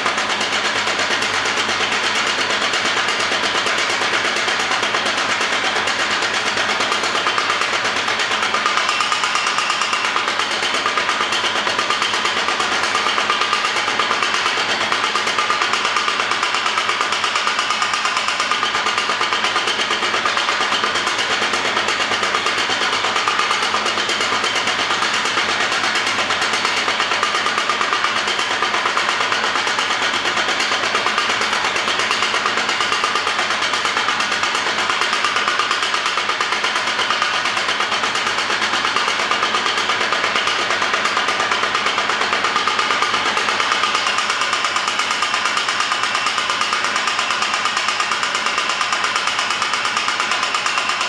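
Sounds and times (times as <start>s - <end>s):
power hammer hammering: 0.0s - 51.0s.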